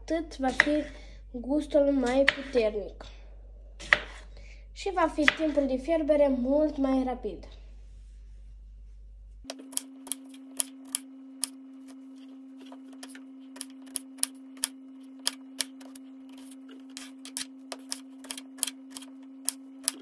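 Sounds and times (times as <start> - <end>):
steady low hum: 0.0 - 20.0
knife chopping on wooden board: 3.8 - 4.2, 12.6 - 20.0.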